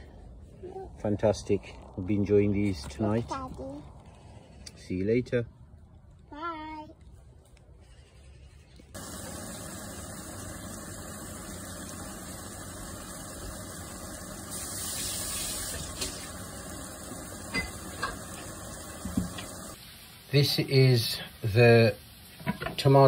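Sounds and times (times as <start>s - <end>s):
tomatoes sizzling in a pan: 9.0s - 23.0s.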